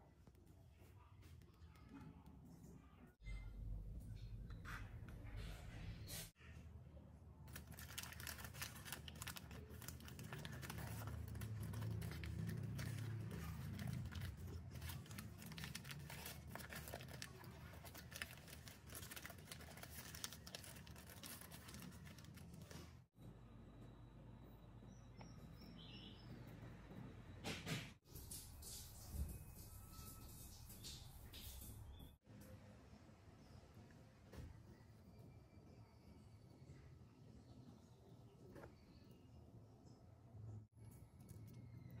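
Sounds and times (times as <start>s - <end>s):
parchment paper crinkling: 7.5s - 23.1s.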